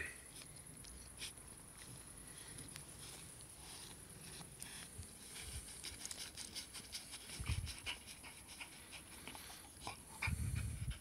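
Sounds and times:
dogs panting: 5.6s - 11.0s.

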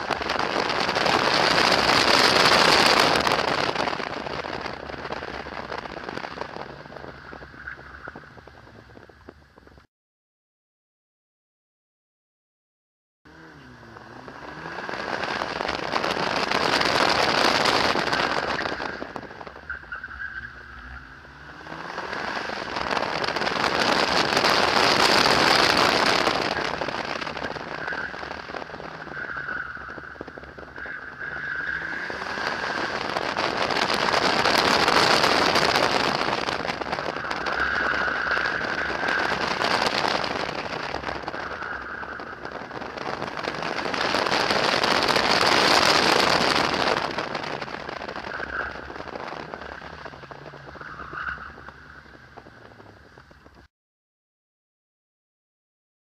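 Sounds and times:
faint car engine: 13.3s - 53.7s.

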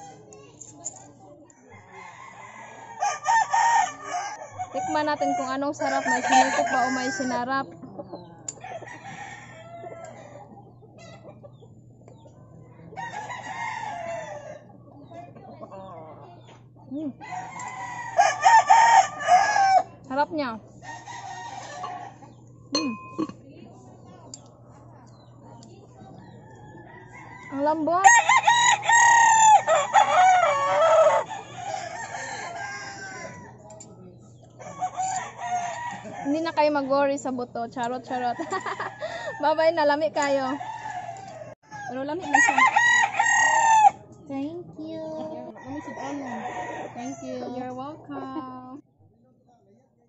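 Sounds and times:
rooster crowing: 1.6s - 7.6s, 8.6s - 10.4s, 13.0s - 14.6s, 17.2s - 20.0s, 20.8s - 23.0s, 26.8s - 33.6s, 34.6s - 37.1s, 38.2s - 39.6s, 40.2s - 44.0s, 45.6s - 47.6s.

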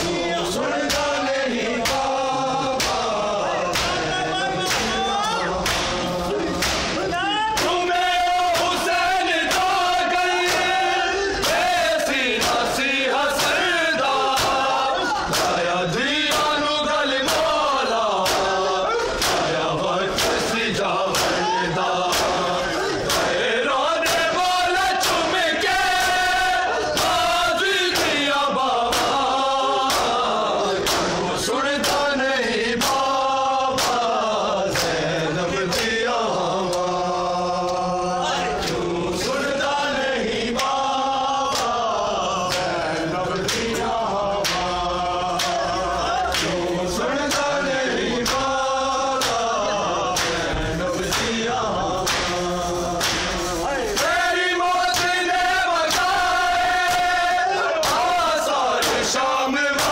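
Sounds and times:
men chanting in unison: 0.0s - 59.9s
hands slapping chests: 0.8s - 1.2s, 1.8s - 2.1s, 2.8s - 7.8s, 8.5s - 8.9s, 9.5s - 12.8s, 13.4s - 13.7s, 14.3s - 15.6s, 18.2s - 20.5s, 21.1s - 23.4s, 27.9s - 31.2s, 32.8s - 36.0s, 41.5s - 41.8s, 42.4s - 43.8s, 44.4s - 45.6s, 46.3s - 46.6s, 47.2s - 47.5s, 48.2s - 49.5s, 50.1s - 51.4s, 52.0s - 54.2s, 54.8s - 55.3s, 55.9s - 56.2s, 57.8s - 59.1s.

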